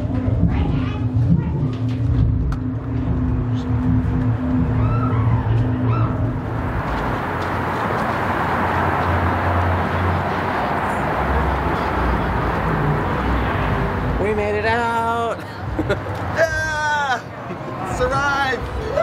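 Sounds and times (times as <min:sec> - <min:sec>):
low rumble: 0:00.0 - 0:14.4
loud rushing noise: 0:00.0 - 0:14.8.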